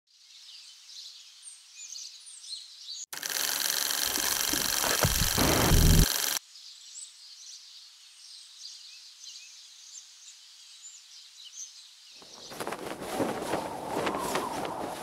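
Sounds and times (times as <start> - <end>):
rush of noise and low thumps: 5.0 - 6.0.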